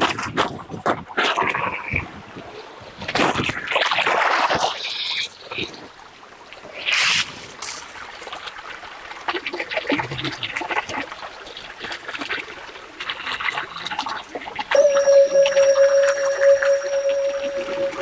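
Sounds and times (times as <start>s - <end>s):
held music note: 14.8s - 18.0s.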